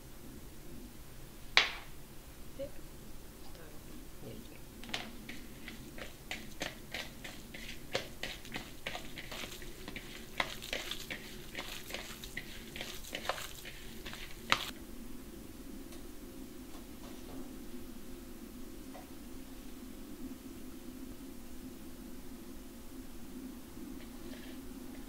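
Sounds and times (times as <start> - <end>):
hands kneading raw meat: 4.8 - 14.7.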